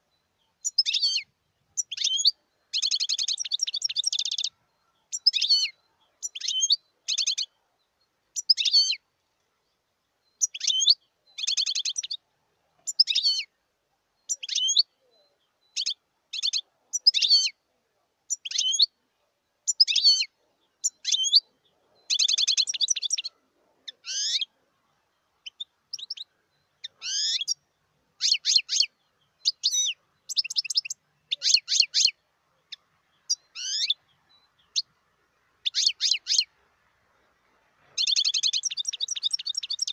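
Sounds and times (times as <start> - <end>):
finch twittering and trilling: 0.6 - 7.6, 8.4 - 9.0, 10.4 - 12.2, 12.8 - 13.5, 14.3 - 14.9, 15.7 - 17.6, 18.3 - 18.9, 19.7 - 24.5, 25.4 - 27.6, 28.2 - 34.9, 35.6 - 36.5, 38.0 - 39.9.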